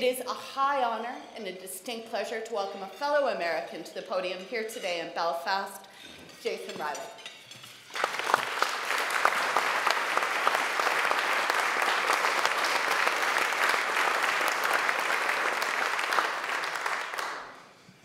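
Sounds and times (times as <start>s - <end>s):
audience applauding: 7.9s - 17.8s.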